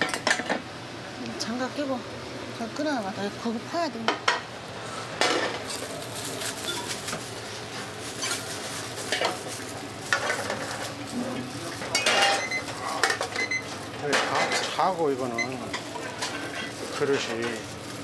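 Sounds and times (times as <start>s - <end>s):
ladle clanking against pots: 11.8s - 14.9s.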